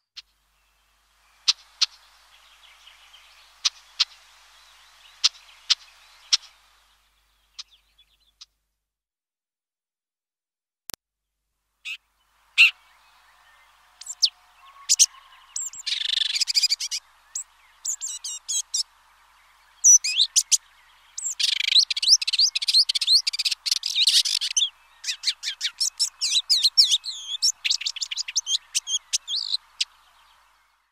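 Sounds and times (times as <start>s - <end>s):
faint steady hiss: 0.0s - 8.8s, 11.2s - 30.9s
bird singing chattering warble: 11.8s - 30.9s.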